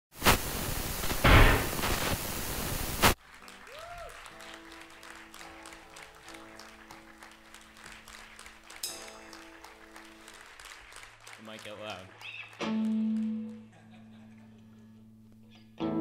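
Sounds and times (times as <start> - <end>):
static hiss: 0.1 - 3.2.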